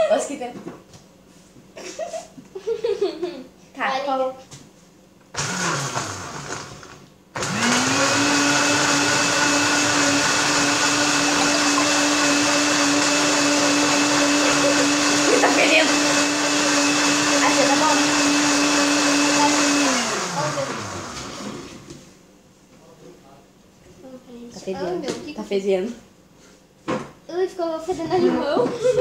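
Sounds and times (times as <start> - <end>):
blender whirring: 5.3 - 22.0.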